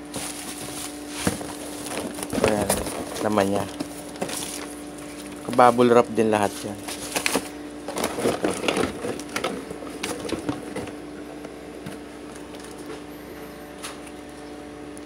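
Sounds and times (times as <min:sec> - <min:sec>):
packaging rustling and crinkling: 0:00.0 - 0:11.0.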